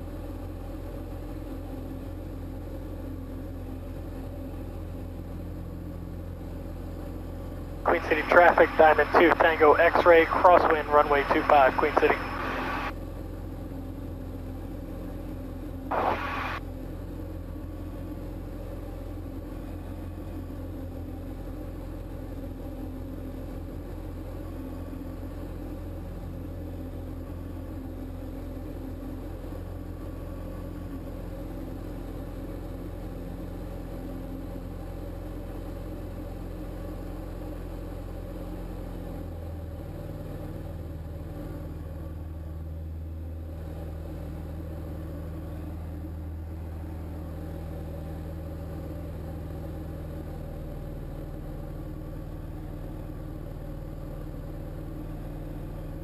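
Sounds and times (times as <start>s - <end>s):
aircraft engine and propeller drone: 0.0s - 56.0s
short burst of noise: 7.9s - 12.9s, 15.9s - 16.6s.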